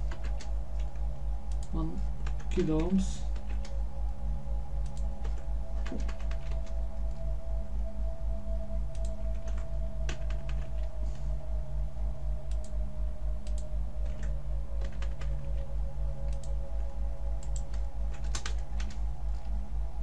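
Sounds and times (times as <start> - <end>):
computer keyboard typing: 0.0 - 3.8, 4.8 - 7.2, 8.9 - 10.9, 13.4 - 16.6, 17.4 - 19.5
loud pulsing low hum: 0.0 - 20.0.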